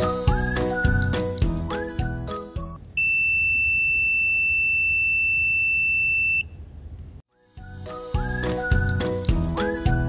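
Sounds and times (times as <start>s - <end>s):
multimeter continuity beep: 3.0s - 6.5s.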